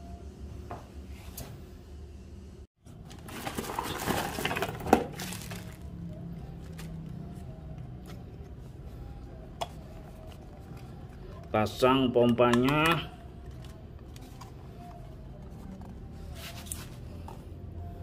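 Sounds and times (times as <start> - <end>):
handling plastic pump parts: 3.0 - 6.0, 6.6 - 17.4
plastic packaging crinkling: 3.0 - 7.1.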